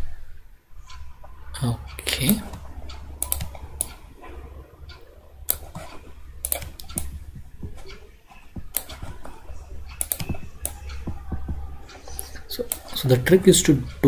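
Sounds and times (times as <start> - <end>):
low steady hum: 0.0 - 14.0
mouse and keyboard clicks: 2.3 - 4.0, 4.9 - 13.0.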